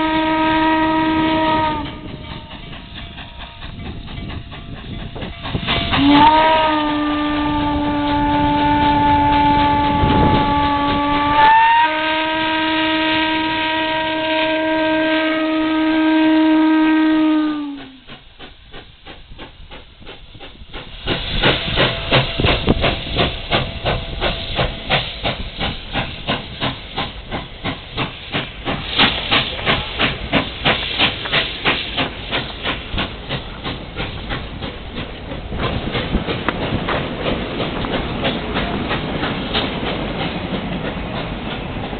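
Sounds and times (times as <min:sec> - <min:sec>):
steam whistle blasts: 0:00.0 - 0:02.7, 0:05.6 - 0:18.1
railway cars rolling: 0:00.0 - 0:41.9
locomotive exhaust chuffing: 0:17.0 - 0:41.9.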